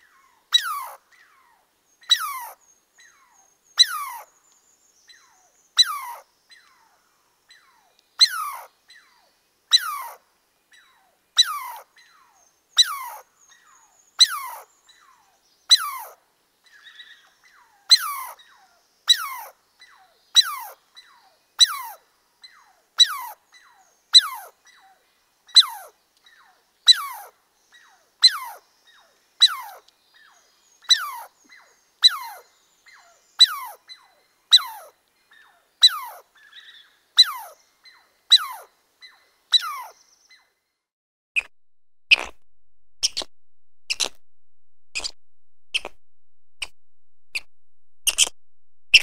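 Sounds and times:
squirrel alarm calls: 0.5 - 1.3, 2.1 - 4.3, 5.2 - 6.2, 7.5 - 9.0, 9.7 - 10.2, 11.4 - 12.2, 12.8 - 13.2, 14.2 - 15.1, 15.7 - 16.2, 16.8 - 22.0, 23.0 - 24.9, 25.5 - 25.9, 26.9 - 28.6, 29.4 - 29.8, 30.8 - 40.4, 42.1 - 42.4, 43.0 - 43.3, 43.9 - 44.2, 44.9 - 46.0, 46.6 - 49.0.

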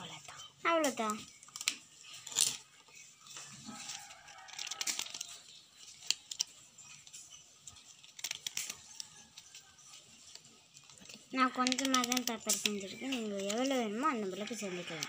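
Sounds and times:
paper pages flicking: 8.1 - 9.1, 11.0 - 12.8.

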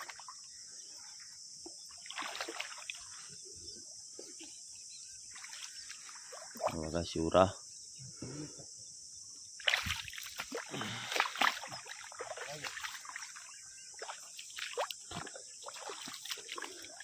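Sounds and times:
muddy water splashing: 0.0 - 3.6, 5.1 - 7.2, 9.6 - 17.0.

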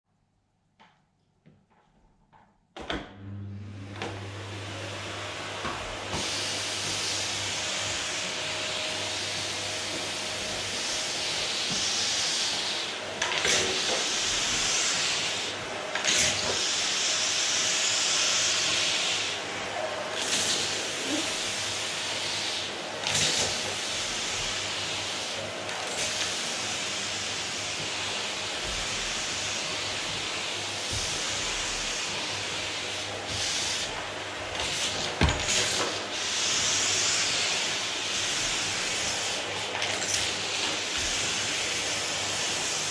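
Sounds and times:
vacuum cleaner running: 2.8 - 42.9.

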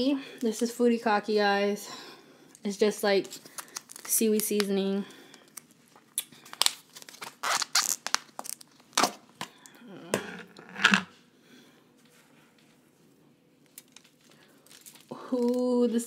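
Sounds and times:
plastic tub crackling: 6.4 - 9.3, 10.0 - 11.1.

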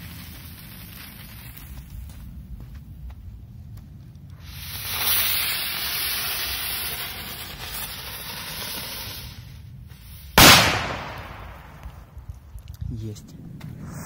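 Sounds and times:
firecracker hissing: 0.0 - 2.1, 4.3 - 12.0, 13.7 - 14.0
firecracker bang: 10.3 - 12.1.

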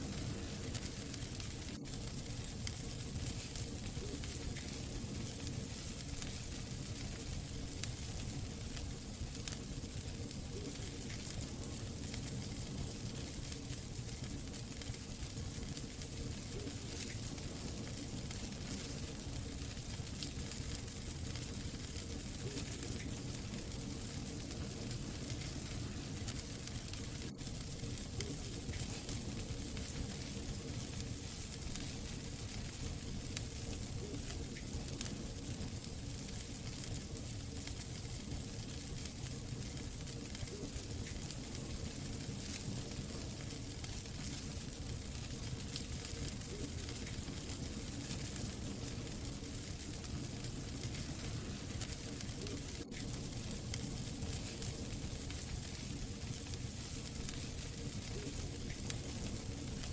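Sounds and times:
wood fire crackling and popping: 0.0 - 59.9.

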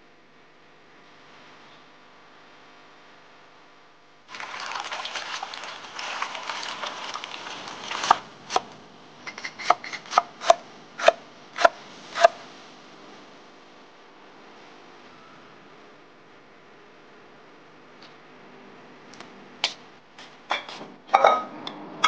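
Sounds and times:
wet crackly rustling of greens: 4.3 - 8.8.

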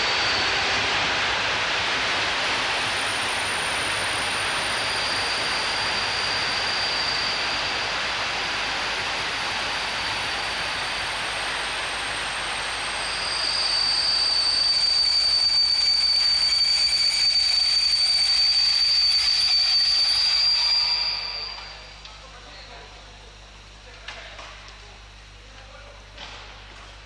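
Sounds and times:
high-pitched metallic wheel squeal: 3.0 - 8.1, 12.8 - 22.0.

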